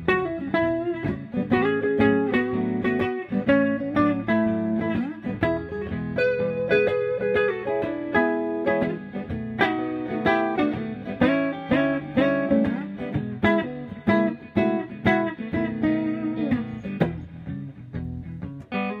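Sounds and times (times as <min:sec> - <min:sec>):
archtop guitar chords ringing: 0:00.0 - 0:19.0.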